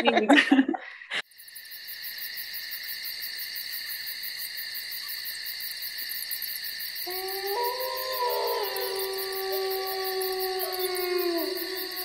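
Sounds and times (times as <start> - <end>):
night insects chirring: 1.2 - 12.0
wolves howling: 7.0 - 12.0.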